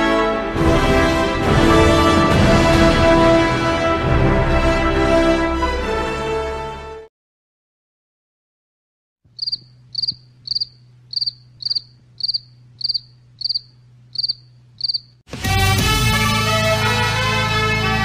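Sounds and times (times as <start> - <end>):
cricket chirping: 9.3 - 15.2.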